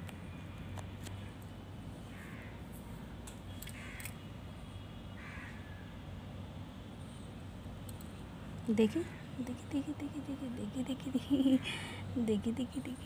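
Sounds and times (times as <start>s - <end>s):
steady low hum: 5.6s - 13.0s.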